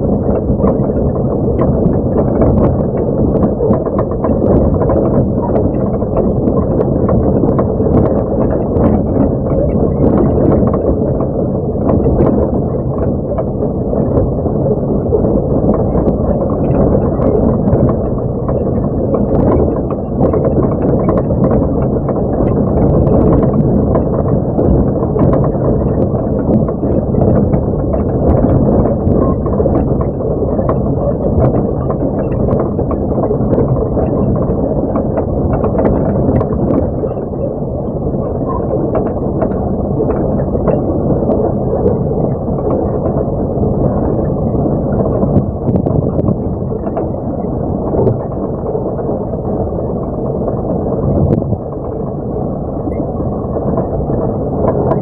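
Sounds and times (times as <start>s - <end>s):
knocks and rattles in cab: 15.2s - 37.3s.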